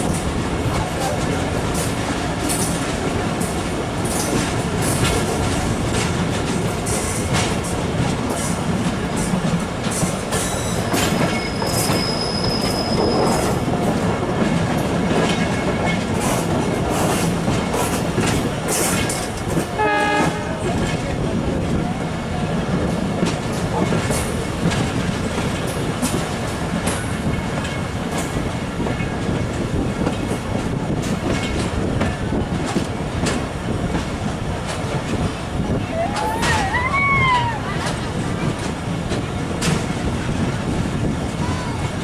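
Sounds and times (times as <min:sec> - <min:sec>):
train rumble: 0:00.0 - 0:42.0
wheels clicking over rail joints: 0:00.0 - 0:42.0
high squeal: 0:10.9 - 0:13.5.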